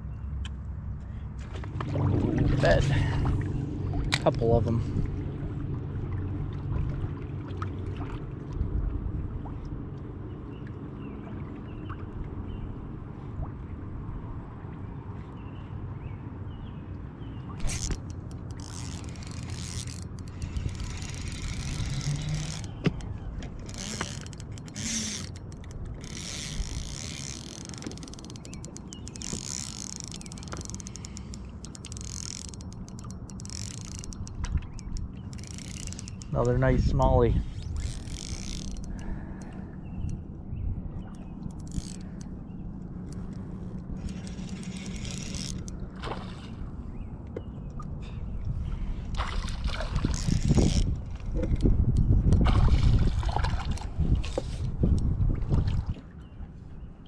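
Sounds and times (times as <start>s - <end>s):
steady low hum: 0.0s - 57.0s
fishing reel whirring: 17.6s - 39.5s, 41.5s - 42.3s, 43.0s - 45.8s, 50.0s - 51.1s
reel clicks: 17.6s - 40.2s, 41.0s - 46.3s, 49.9s - 52.5s
fish splashing in water: 49.1s - 51.3s, 52.4s - 54.6s.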